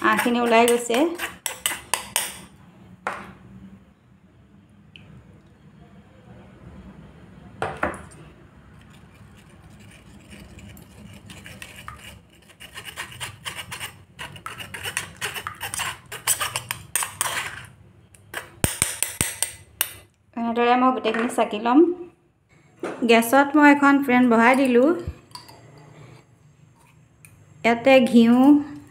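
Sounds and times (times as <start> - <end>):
spoon scraping on mesh strainer: 0.0 - 2.4, 8.7 - 19.6.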